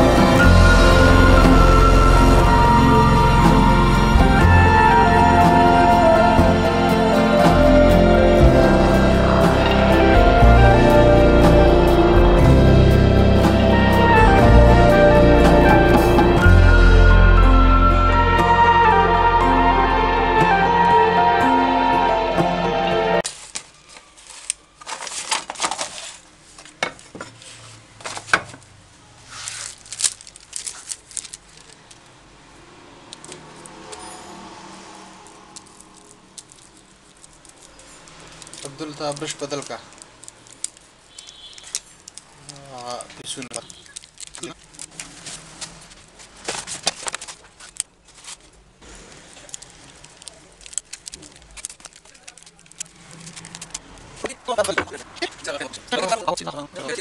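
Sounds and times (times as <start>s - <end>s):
sticker sheet crinkling and rustling: 23.2s - 32.2s, 35.6s - 54.4s.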